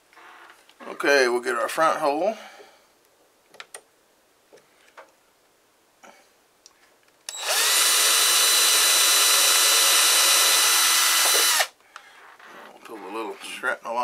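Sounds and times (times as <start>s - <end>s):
cordless drill whirring: 7.3s - 11.8s.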